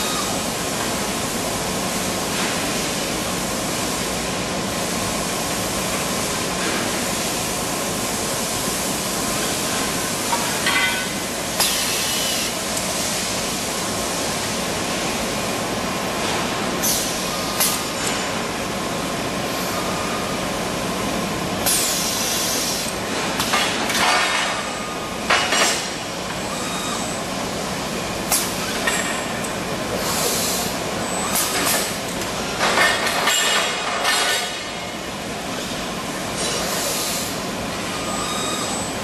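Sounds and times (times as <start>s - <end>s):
compressed air hisses: 11.6s - 13.3s, 21.7s - 22.9s, 30.0s - 30.8s.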